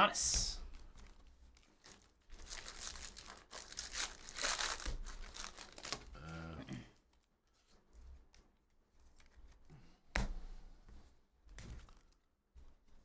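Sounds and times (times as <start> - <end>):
foil wrapper tearing and crinkling: 1.0 - 6.2.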